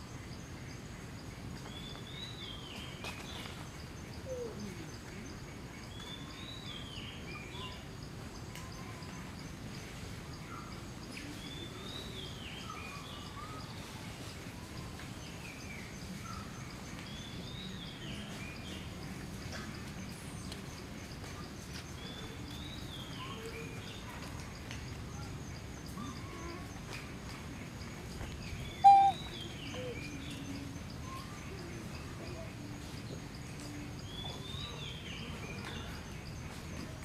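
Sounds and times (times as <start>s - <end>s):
low background noise: 0.0s - 37.0s
bird whistling: 28.8s - 30.0s.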